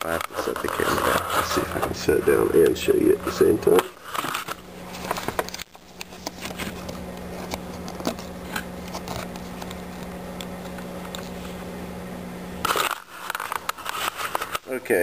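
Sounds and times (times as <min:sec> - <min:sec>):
hands handling plastic insert: 0:00.0 - 0:11.4
steady low hum: 0:00.0 - 0:15.0.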